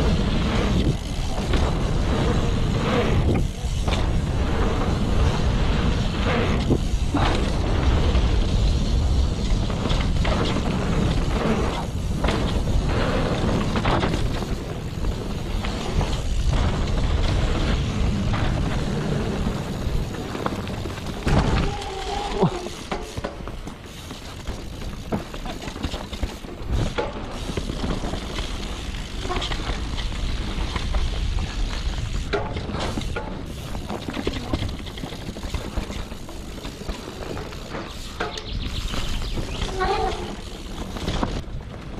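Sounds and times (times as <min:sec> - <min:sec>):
wind buffeting microphone: 0:00.0 - 0:22.6
bike knocks and rattles: 0:00.0 - 0:41.9
bike tyre noise: 0:00.0 - 0:41.9.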